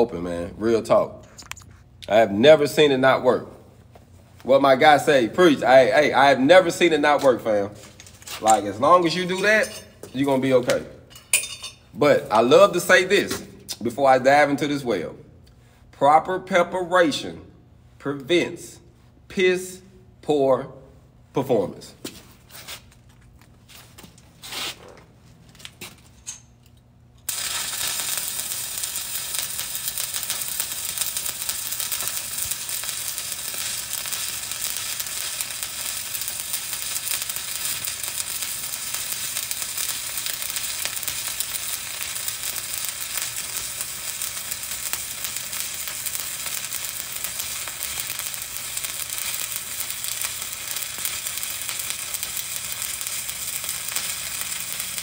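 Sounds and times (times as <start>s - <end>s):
welding arc crackling: 4.6s - 11.0s, 27.2s - 55.0s.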